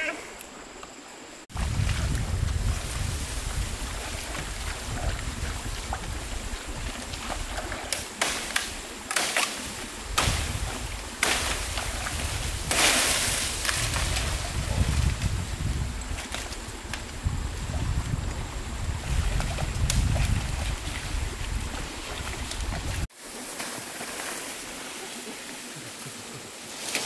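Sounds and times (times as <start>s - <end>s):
stream water running: 0.0s - 27.0s
wind rumble on microphone: 1.5s - 7.9s, 9.7s - 23.1s
rustle of falling bamboo leaves: 1.5s - 17.5s, 18.8s - 27.0s
blade chopping bamboo: 7.9s - 10.6s.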